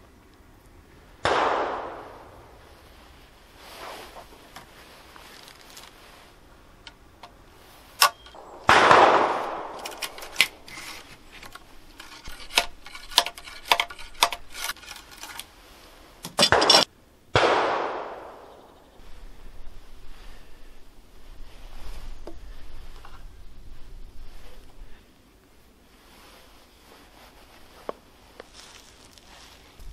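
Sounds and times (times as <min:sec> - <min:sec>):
echoing gunshots: 0:01.2 - 0:02.7, 0:08.4 - 0:10.6, 0:16.5 - 0:18.8
ramrod clicking in rifle barrel: 0:09.6 - 0:15.5.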